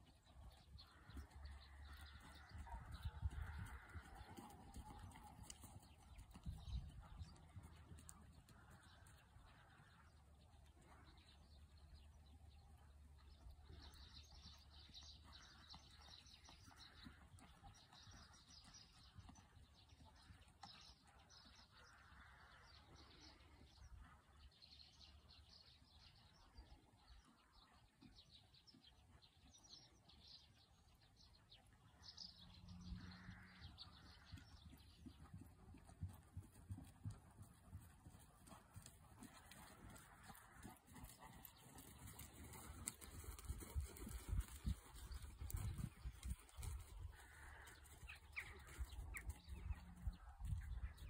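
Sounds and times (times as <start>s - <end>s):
faint birds chirping: 0.0s - 51.0s
horse hoofbeats on sand: 34.2s - 50.2s.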